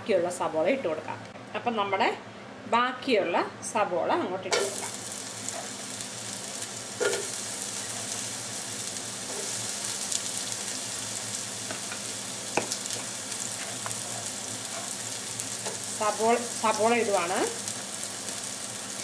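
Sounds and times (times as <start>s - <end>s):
onions sizzling in hot fat: 4.5s - 19.0s.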